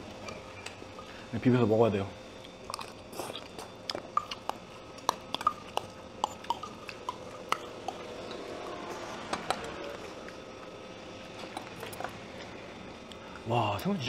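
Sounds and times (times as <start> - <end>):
soft wet chewing: 2.4 - 10.7, 11.4 - 12.2.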